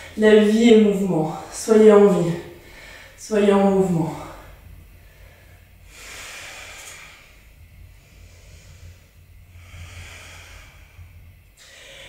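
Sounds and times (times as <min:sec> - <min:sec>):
woman breathing slowly: 0:00.0 - 0:00.2, 0:02.5 - 0:03.2, 0:04.3 - 0:12.0
faint low hum: 0:00.0 - 0:12.0.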